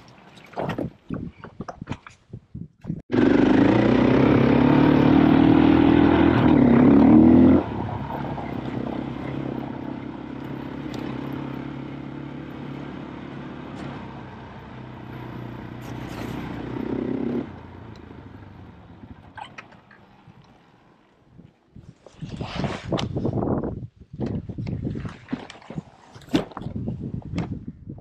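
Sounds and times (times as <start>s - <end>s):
dirt bike engine revving: 3.1s - 18.8s.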